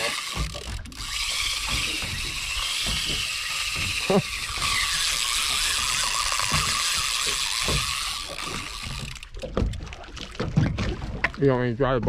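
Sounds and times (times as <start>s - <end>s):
fishing reel drag buzzing: 0.0s - 9.4s.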